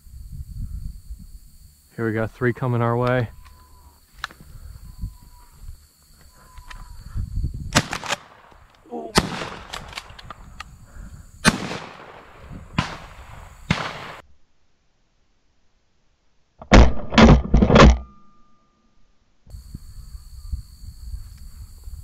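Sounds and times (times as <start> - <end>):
shotgun blasts with echo: 7.7 - 10.2, 11.4 - 14.2.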